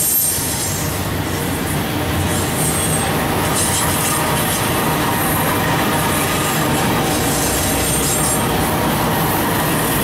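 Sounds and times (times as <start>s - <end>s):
high wheel squeal: 0.0s - 1.0s
steel wheels rolling on rails: 0.0s - 10.0s.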